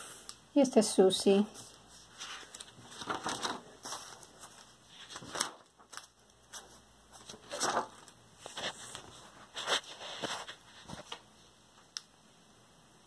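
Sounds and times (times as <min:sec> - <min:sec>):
paper pages rustling: 0:01.5 - 0:11.3.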